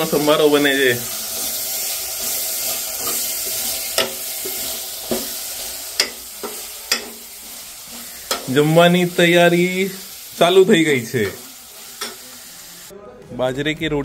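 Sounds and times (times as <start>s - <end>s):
vegetables sizzling in a pan: 0.0s - 12.9s
spatula scraping a pan: 1.0s - 8.7s.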